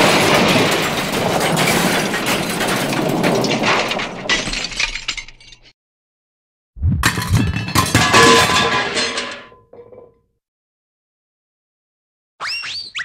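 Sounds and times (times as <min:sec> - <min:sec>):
glass shattering and debris clattering: 0:00.0 - 0:05.8, 0:07.0 - 0:10.1.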